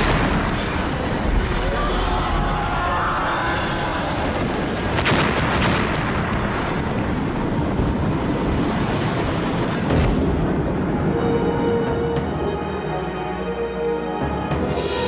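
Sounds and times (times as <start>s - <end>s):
sharp explosion blasts: 0.0s - 2.3s, 4.1s - 11.2s
heavy eruption roar: 0.0s - 12.4s.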